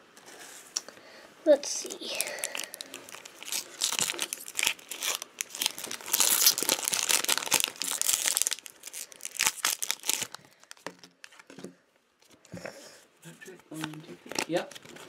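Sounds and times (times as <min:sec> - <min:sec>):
foil wrapper crinkling and tearing: 0:02.0 - 0:11.5, 0:13.8 - 0:15.0.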